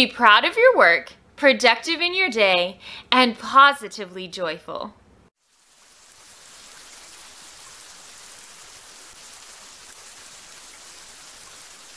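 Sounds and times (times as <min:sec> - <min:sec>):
steady hiss: 0:05.4 - 0:11.9.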